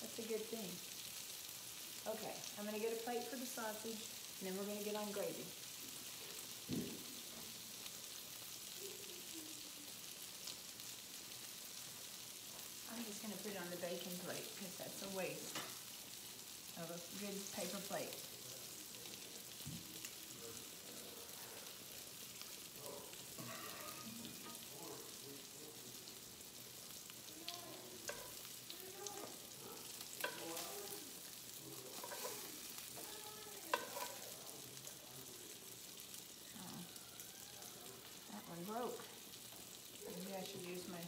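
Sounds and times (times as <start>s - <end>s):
sausage sizzling in a skillet: 0.0s - 41.0s
metal tongs clicking on pan: 33.7s - 34.2s.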